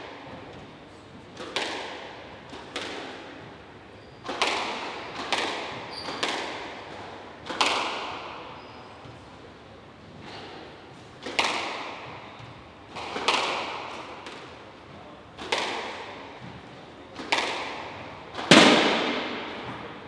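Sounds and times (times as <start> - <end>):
squash ball cracking off rackets and walls: 4.3 - 8.4, 11.2 - 14.6, 15.4 - 20.0.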